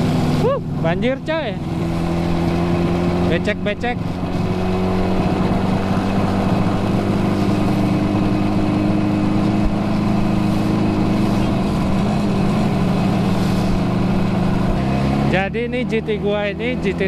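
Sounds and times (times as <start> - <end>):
two-stroke engine cruising: 0.0 - 17.0.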